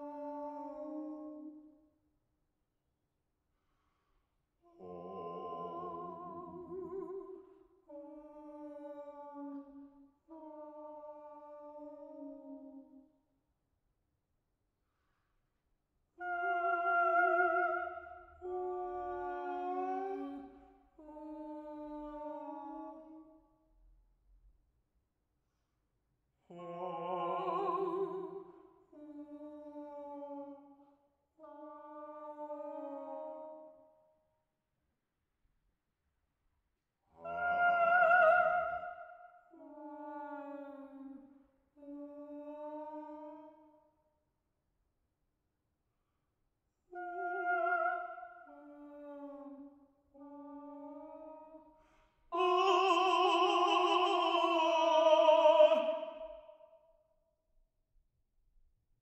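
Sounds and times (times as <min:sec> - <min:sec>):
woman singing long notes: 0:00.0 - 0:01.7, 0:04.7 - 0:13.0, 0:16.2 - 0:23.4, 0:26.5 - 0:30.6, 0:31.4 - 0:33.8, 0:37.2 - 0:43.5, 0:46.9 - 0:51.7, 0:52.3 - 0:56.4.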